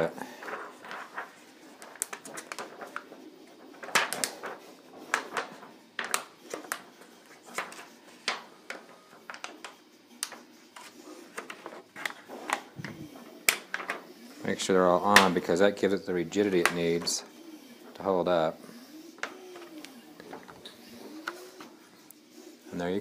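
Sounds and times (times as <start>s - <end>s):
plastic sheet clicking and crinkling: 0.4s - 15.6s, 19.2s - 21.7s.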